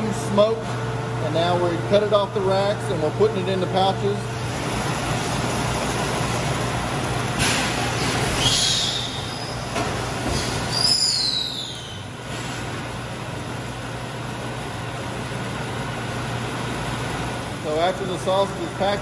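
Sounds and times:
packaging machine humming: 0:00.0 - 0:19.0
high falling whistle: 0:10.7 - 0:12.0.

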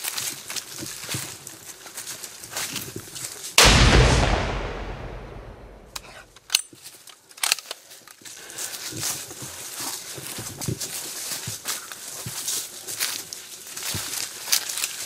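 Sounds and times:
sharp clicks: 0:03.6 - 0:06.1
rifle shot with echo: 0:03.6 - 0:06.3.

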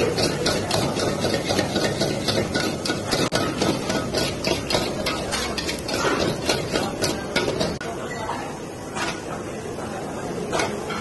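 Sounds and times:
metal ladle scraping a wok: 0:00.0 - 0:07.8.

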